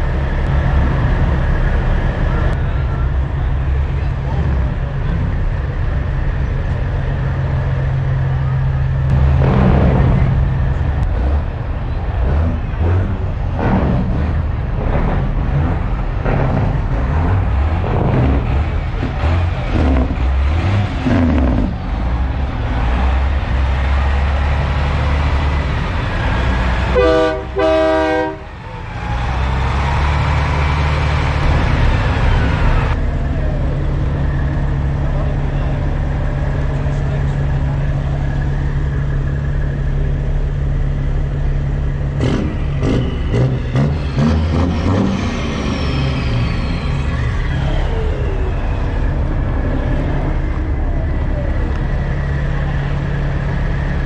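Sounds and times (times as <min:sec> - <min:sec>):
people chattering: 0:00.0 - 0:13.6, 0:28.4 - 0:42.2, 0:43.2 - 0:54.0
diesel trucks idling: 0:00.0 - 0:54.0
truck horn blasts: 0:26.8 - 0:28.5.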